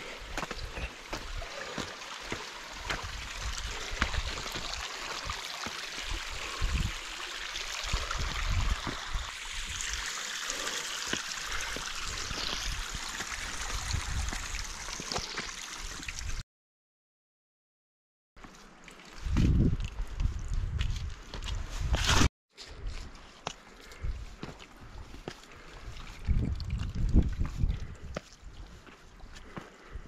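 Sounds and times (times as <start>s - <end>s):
water trickling over rock: 0.2s - 16.4s, 18.5s - 21.0s, 24.8s - 29.9s.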